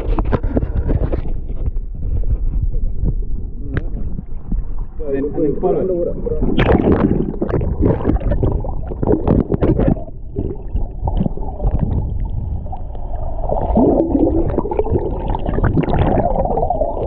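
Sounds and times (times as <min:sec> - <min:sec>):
underwater gurgling and sloshing: 0:00.0 - 0:17.0
splashy crackles: 0:06.6 - 0:11.9.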